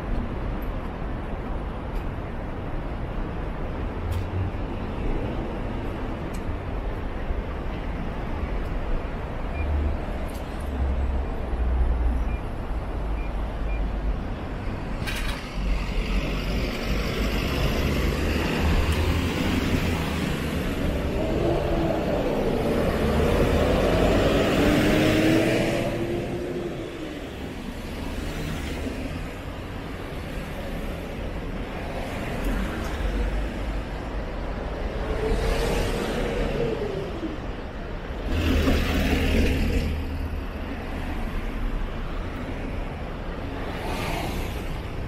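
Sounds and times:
low traffic rumble: 0.0 - 45.0
vehicle passing: 15.8 - 27.3.

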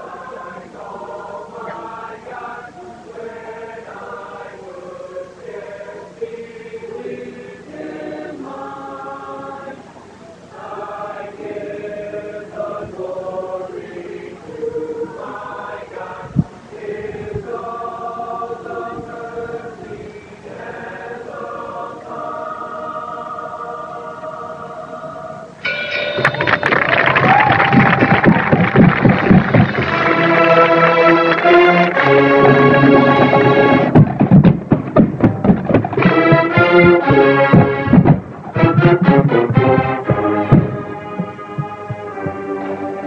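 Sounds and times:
marching band playing chorale: 10.5 - 43.0
low thump: 27.2 - 30.4, 32.4 - 42.4.

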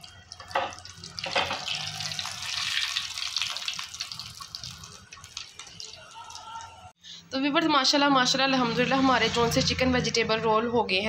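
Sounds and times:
deep-frying sizzling and crackling: 0.0 - 6.6.

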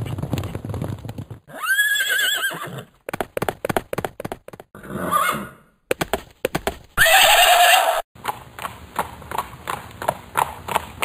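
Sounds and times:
hoofbeats clip-clopping: 0.0 - 1.5, 3.0 - 4.7, 5.9 - 7.1, 8.2 - 11.0
horse whinnying: 1.5 - 3.0, 4.8 - 5.6, 7.0 - 8.0.

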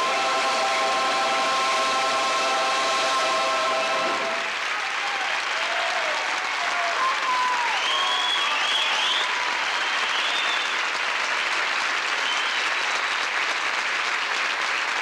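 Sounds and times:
choir singing held chord: 0.0 - 4.6
audience cheering: 0.0 - 13.6
audience applauding: 0.0 - 15.0.

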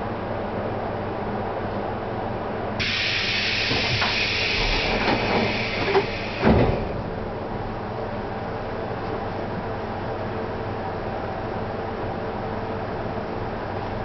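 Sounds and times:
train humming: 0.0 - 14.0
compressed air hiss: 2.8 - 6.6
knocks and heavy thump: 5.0 - 7.2.

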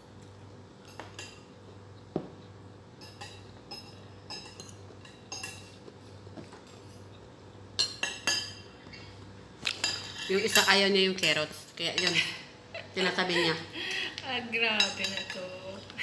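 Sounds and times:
cutlery clinking on ceramic bowl: 3.0 - 5.9, 7.8 - 12.3, 14.8 - 15.6.

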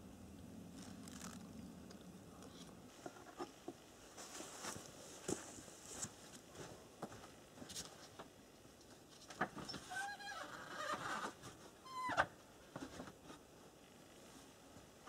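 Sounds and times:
pot and bag being handled: 0.8 - 1.5.

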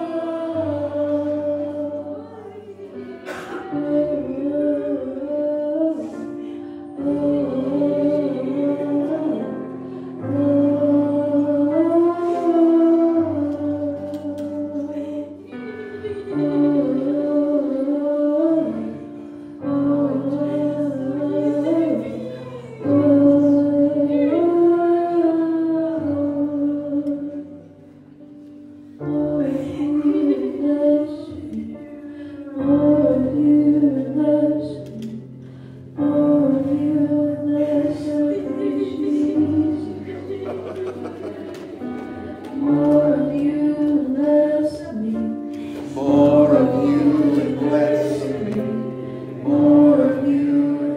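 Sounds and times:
slow worship singing: 0.0 - 50.9.

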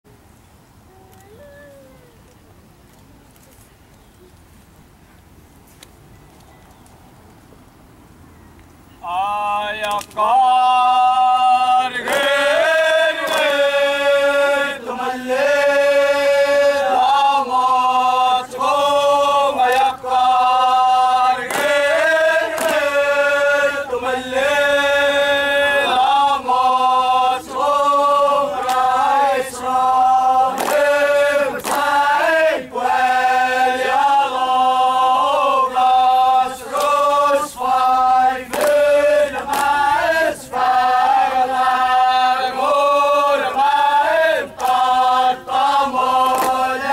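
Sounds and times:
group chanting in unison: 9.1 - 46.9.

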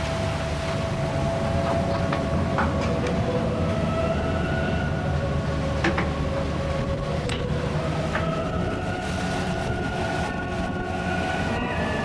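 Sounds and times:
ship machinery rumble: 0.0 - 12.0.

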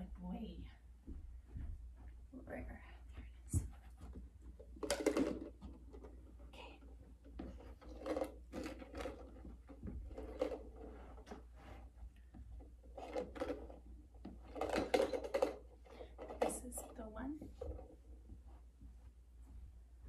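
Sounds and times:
soft footsteps: 0.0 - 4.8, 16.9 - 20.0
plastic containers knocking: 4.0 - 6.3, 12.9 - 18.4.

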